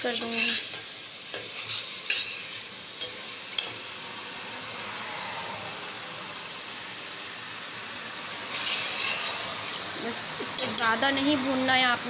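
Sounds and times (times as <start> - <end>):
chicken sizzling in oil: 0.0 - 12.0
metal spoon clinking against pot: 0.1 - 3.8, 10.5 - 11.0.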